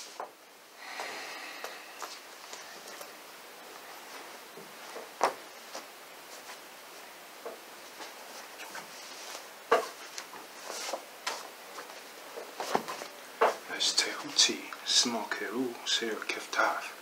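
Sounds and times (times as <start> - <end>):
cloth rustling: 7.7 - 13.6.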